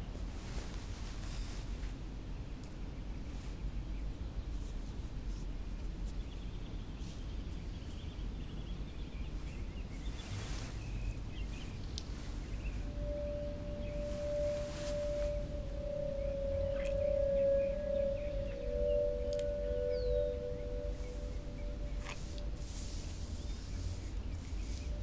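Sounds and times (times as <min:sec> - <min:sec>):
low ambient rumble and hiss: 0:00.0 - 0:25.0
faint high chirps: 0:11.4 - 0:25.0
sustained pure tone: 0:12.1 - 0:25.0.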